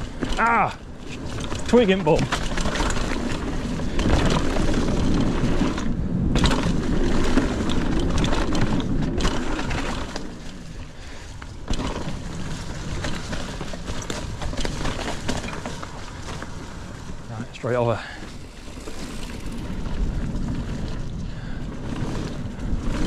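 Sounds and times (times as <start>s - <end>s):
bike rattling over dirt trail: 0.0s - 23.0s
wind noise on microphone: 18.4s - 23.0s.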